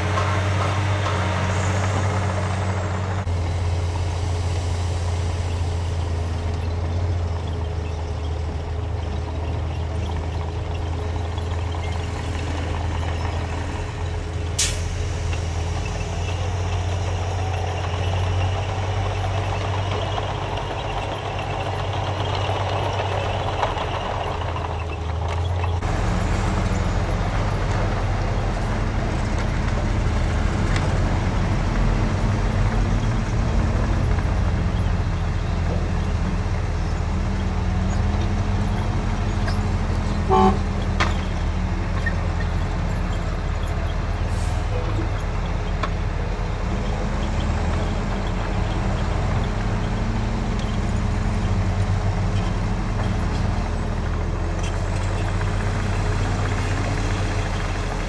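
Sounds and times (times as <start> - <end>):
diesel truck engines running: 0.0 - 58.0
truck horn toot: 40.2 - 40.8.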